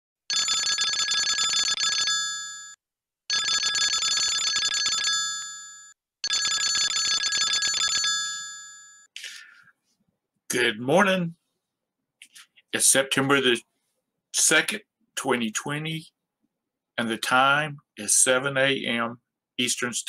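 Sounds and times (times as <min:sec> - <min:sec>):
telephone bell ringing: 0:00.3 - 0:09.1.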